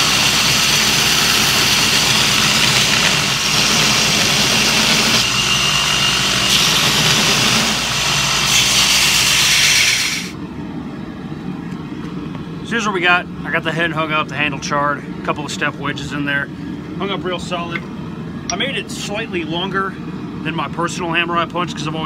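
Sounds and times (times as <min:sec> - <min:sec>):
belt grinder grinding hiss: 0:00.0 - 0:10.4
motor hum: 0:00.0 - 0:12.6.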